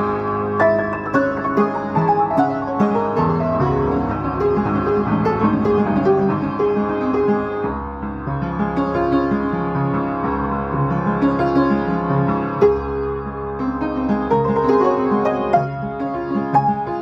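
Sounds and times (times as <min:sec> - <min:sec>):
solo classical piano: 0:00.0 - 0:17.0.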